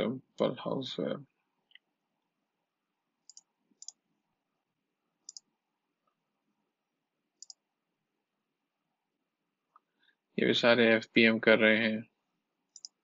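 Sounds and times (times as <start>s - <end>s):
computer mouse clicking: 3.3s - 4.0s, 5.3s - 5.5s, 7.4s - 7.6s, 12.7s - 13.0s.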